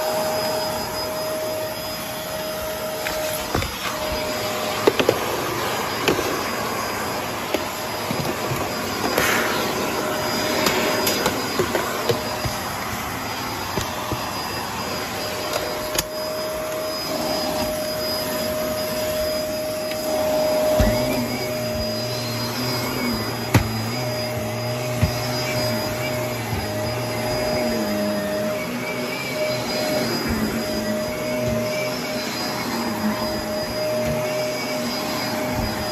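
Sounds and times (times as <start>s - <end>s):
vacuum cleaner running on carpet: 0.0s - 35.9s
small knocks and bumps: 19.9s - 28.0s.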